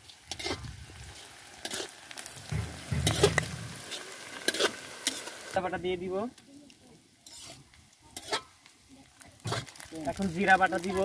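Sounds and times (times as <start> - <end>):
food sizzling in hot oil: 0.0 - 11.0
metal spatula scraping pan: 2.5 - 5.3, 7.2 - 8.6.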